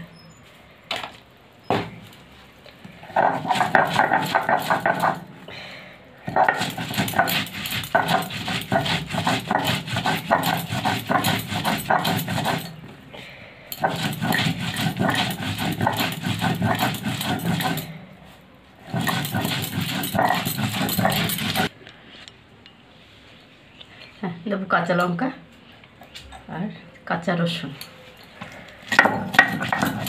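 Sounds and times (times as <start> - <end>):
stone rasping on stone: 3.0 - 5.2, 6.3 - 12.8, 13.7 - 18.0, 18.8 - 21.7, 28.9 - 30.0.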